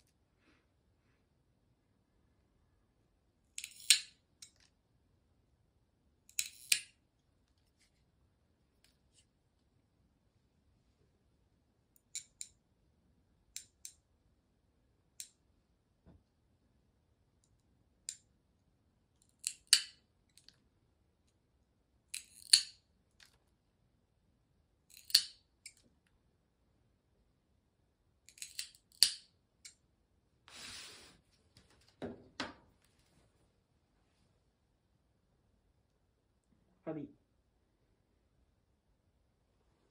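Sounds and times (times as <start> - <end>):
nail clippers snipping claws: 3.6 - 4.6, 6.3 - 6.9, 19.3 - 20.0, 22.1 - 22.8, 24.9 - 25.8, 28.3 - 29.8.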